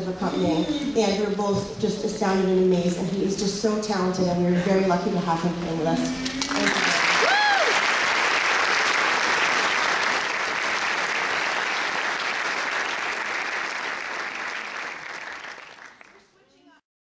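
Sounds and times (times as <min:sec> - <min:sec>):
audience applauding: 0:06.2 - 0:16.4.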